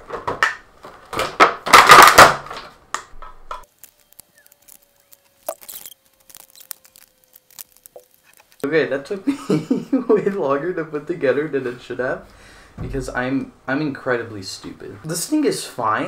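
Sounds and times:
plastic blister tray crackling: 3.6s - 8.7s.

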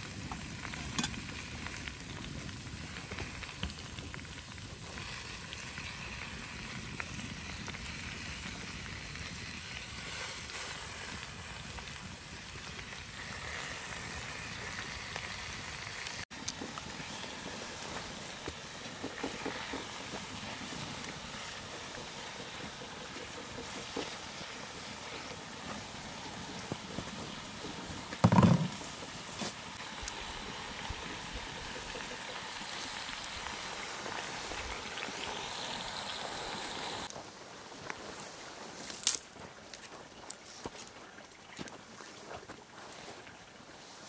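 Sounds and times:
food sizzling in hot oil: 0.0s - 37.1s
outdoor background noise: 0.0s - 44.0s.

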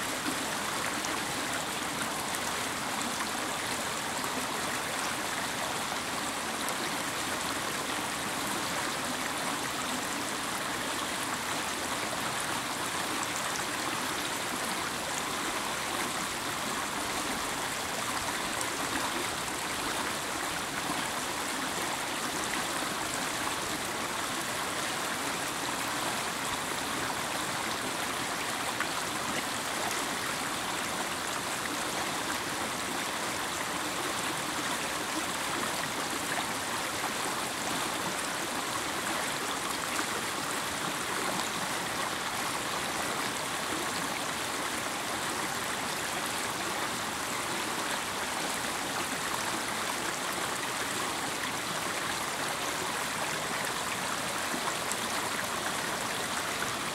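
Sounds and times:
stream babbling over stones: 0.0s - 56.9s.

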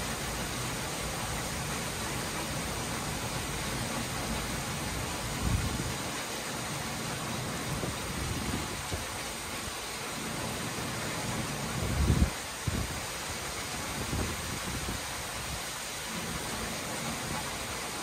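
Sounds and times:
heavy rain hissing: 0.0s - 18.0s.

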